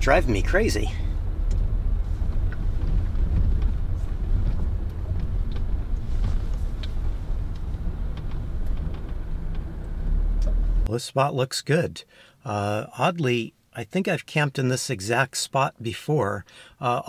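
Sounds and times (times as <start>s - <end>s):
engine and tyre rumble: 0.0s - 10.9s.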